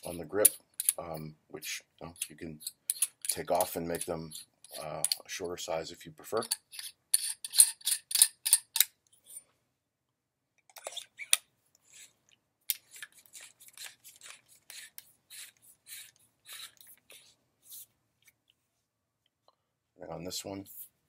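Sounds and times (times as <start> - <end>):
metal threads scraping clicks: 0.0 - 1.1, 2.1 - 5.2, 6.4 - 9.4.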